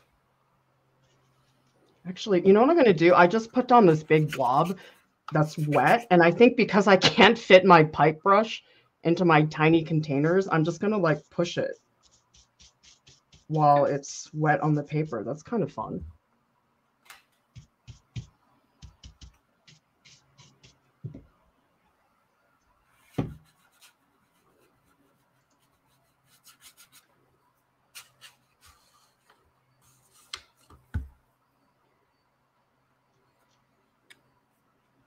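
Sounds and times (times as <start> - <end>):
ink brush scratching on paper: 3.4 - 6.2, 10.6 - 13.6, 17.5 - 20.8, 22.9 - 27.1.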